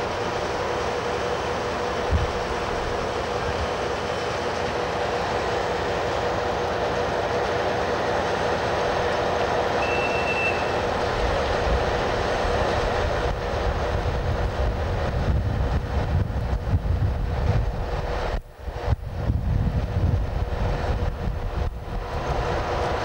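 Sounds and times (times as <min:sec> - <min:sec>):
train rumbling: 0:00.0 - 0:23.0
wind buffeting microphone: 0:02.0 - 0:03.8, 0:10.8 - 0:23.0
high squeal: 0:09.8 - 0:10.8.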